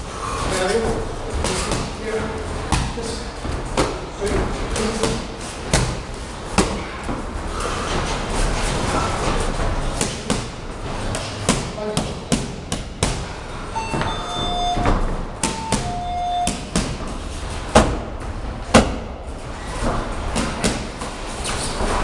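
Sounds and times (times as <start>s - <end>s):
punches and kicks slapping pads: 3.7s - 7.2s, 9.9s - 13.3s, 17.7s - 18.1s, 18.7s - 19.1s, 20.3s - 21.1s
brief squeaky tones: 13.8s - 16.6s.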